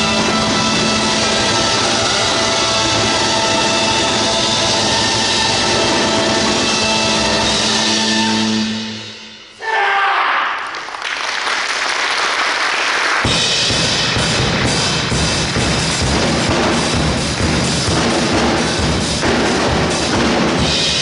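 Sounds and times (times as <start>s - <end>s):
marching band brass and drums: 0.0s - 9.1s, 13.2s - 21.0s
audience applause: 10.6s - 13.3s
sharp drum hit: 13.3s - 21.0s.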